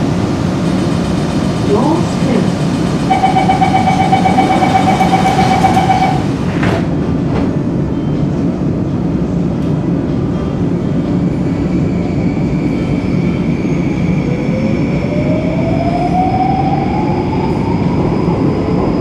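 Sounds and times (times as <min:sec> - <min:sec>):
train low hum: 0:00.0 - 0:19.0
train doors shutting: 0:00.7 - 0:08.3
electronic warning tone: 0:03.1 - 0:06.4.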